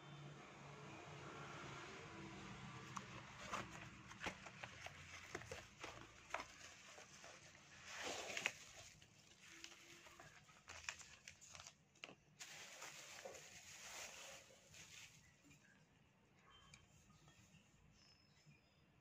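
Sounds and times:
plastic rustle: 2.7 - 15.7.

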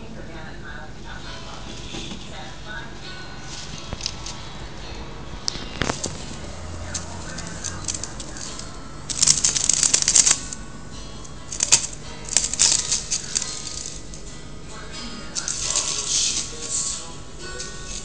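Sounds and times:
ferret scratching in plastic hose: 5.8 - 10.6, 11.5 - 14.2, 15.3 - 17.1.

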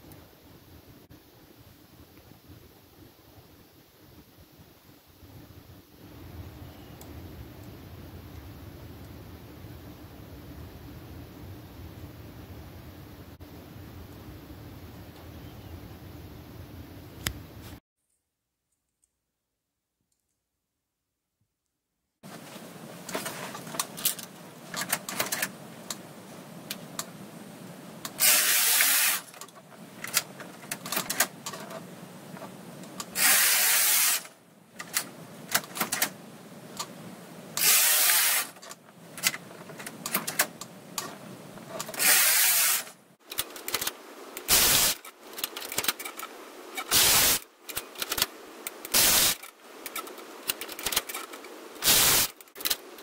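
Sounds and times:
knitting machine carriage rasping: 28.0 - 31.8.

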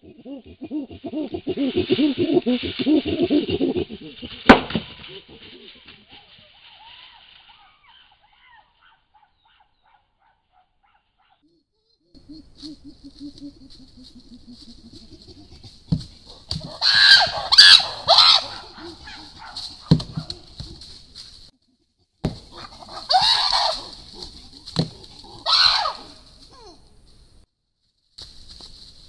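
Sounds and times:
chimpanzee hooting and screaming: 0.0 - 21.0, 22.3 - 26.8
stones knocking on tree trunk: 4.5 - 5.0, 19.8 - 20.8.

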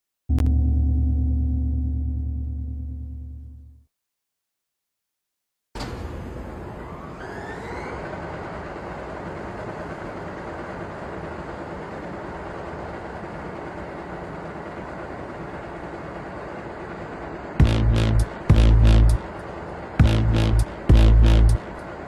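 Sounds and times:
airliner cabin noise: 5.8 - 22.0.

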